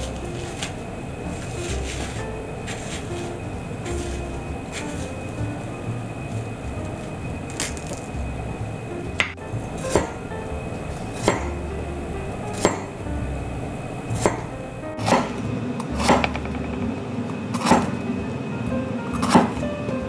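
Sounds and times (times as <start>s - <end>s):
background music: 0.0s - 20.0s
knife chopping on wooden board: 15.0s - 15.4s, 17.6s - 17.9s.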